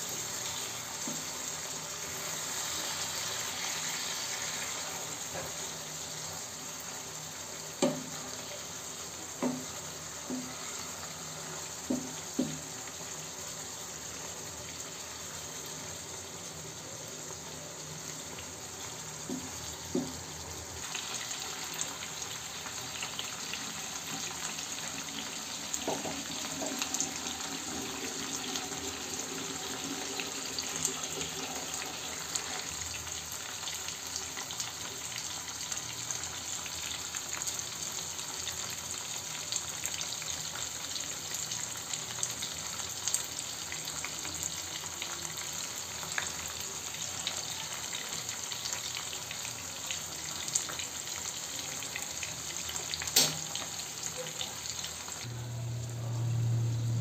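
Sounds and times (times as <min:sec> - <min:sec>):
sauce bubbling and sizzling: 0:00.0 - 0:57.0
wooden spatula knocking pan: 0:09.4 - 0:09.7.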